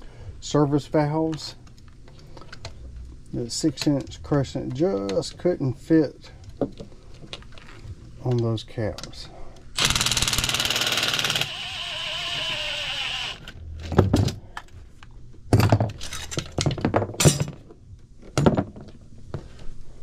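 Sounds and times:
impact driver hammering: 0:09.8 - 0:12.6
impact driver spinning whine: 0:09.8 - 0:13.6.

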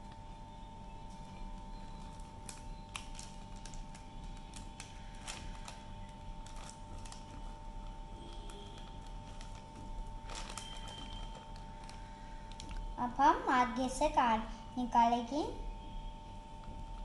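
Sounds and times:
faint steady hum: 0:00.0 - 0:17.0
plastic bag crinkling: 0:01.1 - 0:13.2.

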